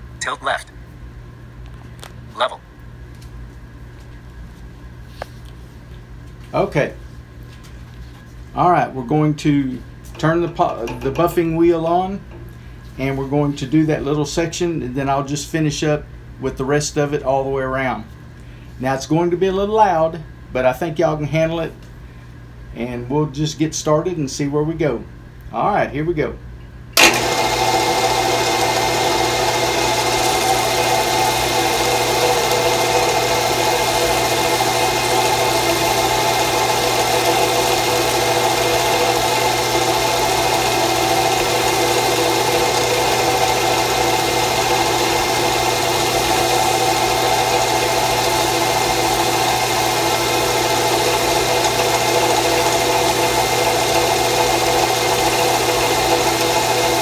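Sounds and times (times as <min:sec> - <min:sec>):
drill press motor humming: 0:27.0 - 0:57.0.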